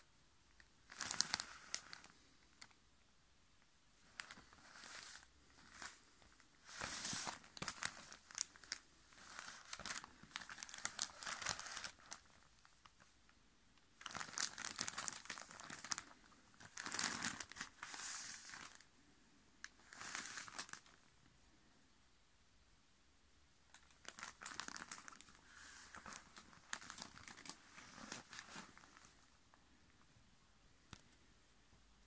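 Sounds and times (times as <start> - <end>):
wrapping sheet crinkling: 0.8 - 2.8, 4.0 - 13.1, 14.0 - 18.9, 19.6 - 21.0, 23.7 - 29.4.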